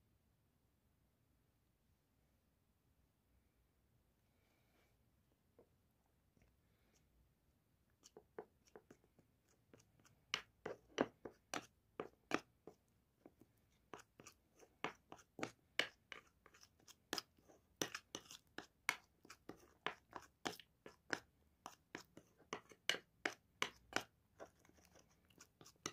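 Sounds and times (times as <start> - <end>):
metal spoon scraping ceramic bowl: 15.8 - 25.9.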